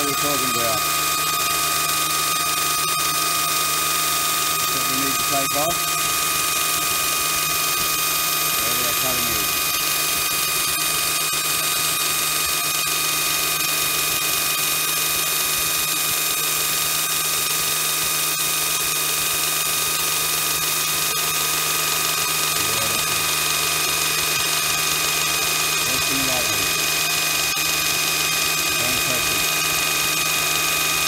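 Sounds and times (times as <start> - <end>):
bench grinder running: 0.0 - 31.0.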